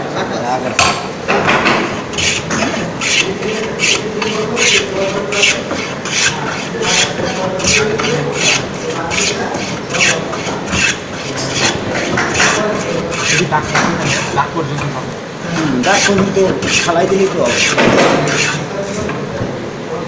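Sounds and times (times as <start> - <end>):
hand plane shaving wood: 2.1 - 14.4, 15.8 - 18.6.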